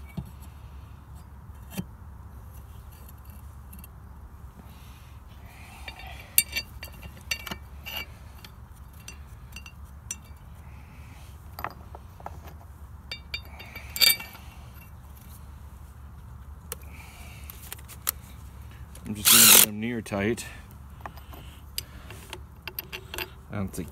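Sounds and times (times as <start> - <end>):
metal parts clinking: 5.8 - 10.4, 11.6 - 14.9, 19.2 - 19.7, 21.0 - 23.9.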